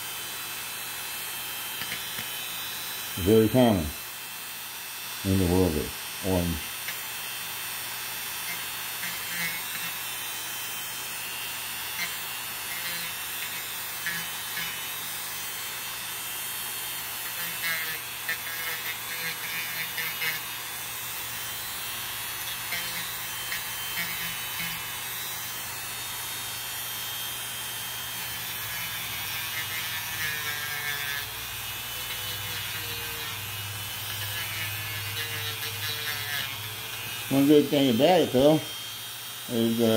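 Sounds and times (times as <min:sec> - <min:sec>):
electric rotary tool running: 0:00.0 - 0:39.9
scratchy grinding on nail: 0:08.4 - 0:10.0, 0:17.2 - 0:20.5, 0:28.6 - 0:37.6.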